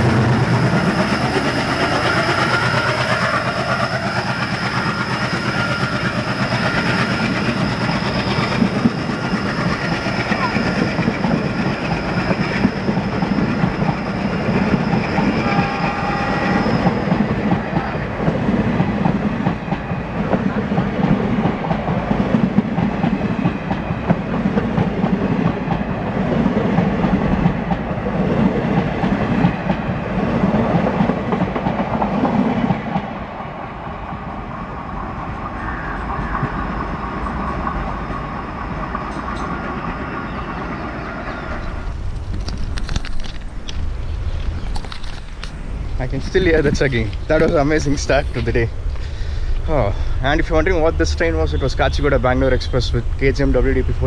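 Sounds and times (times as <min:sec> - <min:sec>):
thin high whine: 0:00.0 - 0:18.1
low train rumble: 0:00.0 - 0:54.0
train wheels clattering over rail joints: 0:36.1 - 0:49.7.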